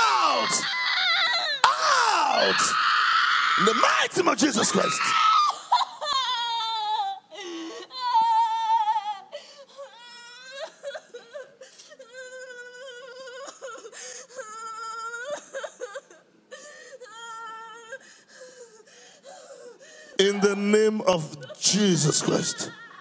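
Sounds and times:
woman wailing: 0.0s - 3.9s, 4.7s - 13.8s, 21.4s - 23.0s.

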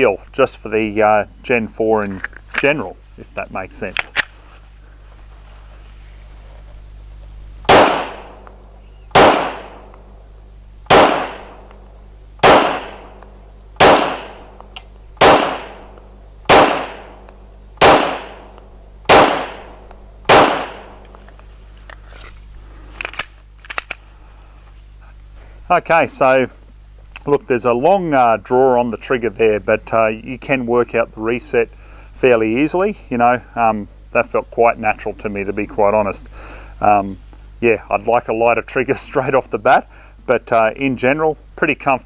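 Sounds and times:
pistol shots: 7.7s - 10.0s, 10.9s - 11.7s, 12.4s - 14.6s, 15.2s - 21.0s.

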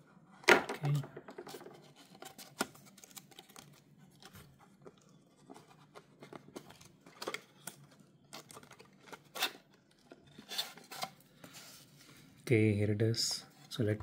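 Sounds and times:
cardboard rustling and scraping: 1.3s - 12.2s.

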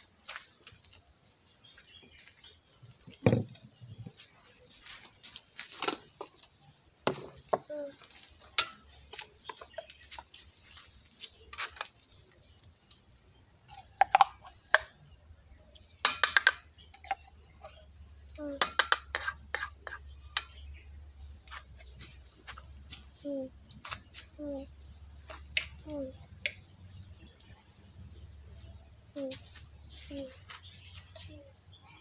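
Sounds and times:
utensil knocking against a pot: 18.6s - 19.7s.

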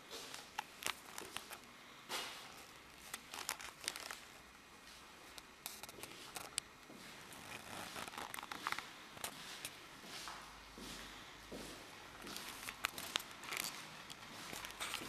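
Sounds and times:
footsteps on concrete floor: 6.9s - 15.0s.

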